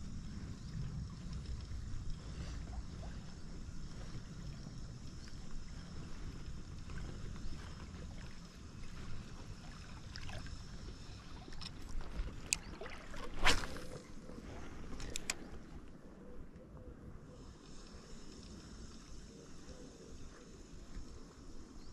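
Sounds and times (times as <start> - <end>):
river water rumbling: 0.0 - 16.0
wind: 0.0 - 21.9
light clicks: 14.8 - 15.6.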